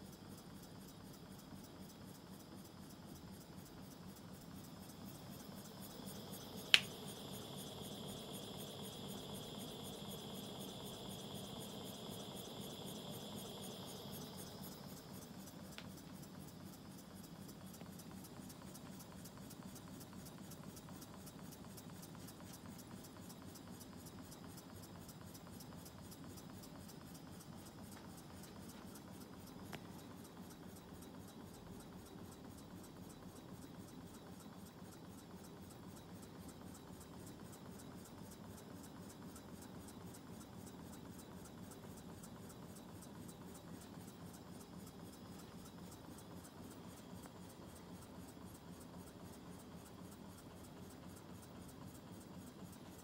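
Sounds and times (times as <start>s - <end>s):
low steady hum: 2.8s - 19.8s
sharp click: 6.4s - 7.2s.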